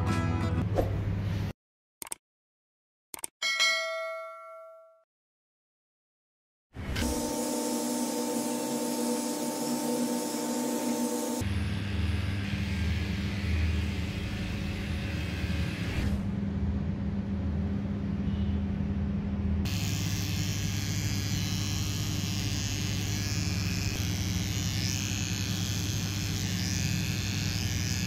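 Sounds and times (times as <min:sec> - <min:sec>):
small cordless trimmer: 0:07.0 - 0:11.5, 0:19.7 - 0:28.0
electric dog clippers humming: 0:07.0 - 0:15.9, 0:19.6 - 0:28.0.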